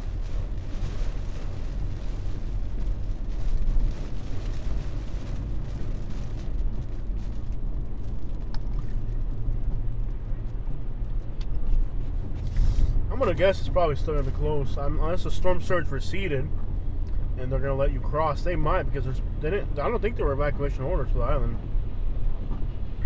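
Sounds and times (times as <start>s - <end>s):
car road and engine rumble: 0.0s - 23.0s.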